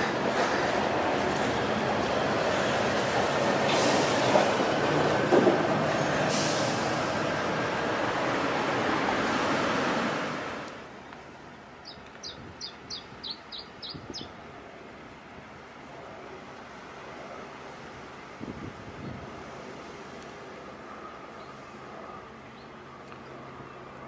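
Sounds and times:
heavy vehicle passing: 0:00.0 - 0:10.7.

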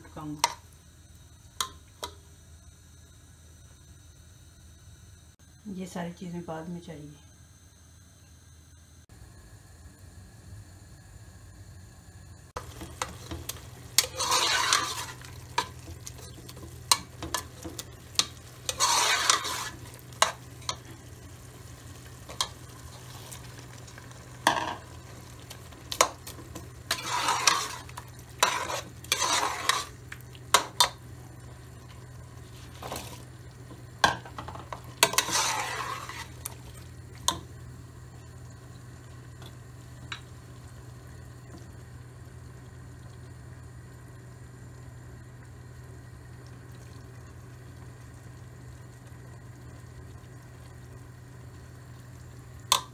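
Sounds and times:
spoon scraping meat in pot: 0:12.6 - 0:21.0, 0:24.4 - 0:31.0, 0:34.3 - 0:36.8.

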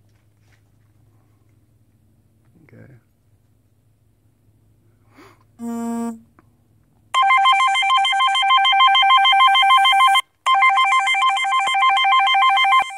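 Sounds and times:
telephone ringtone warbling trill: 0:07.2 - 0:12.9.

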